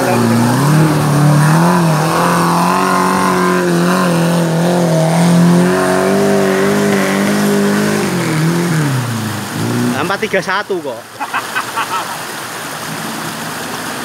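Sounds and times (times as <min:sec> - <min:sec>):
jeep engine revving hard: 0:00.0 - 0:10.2.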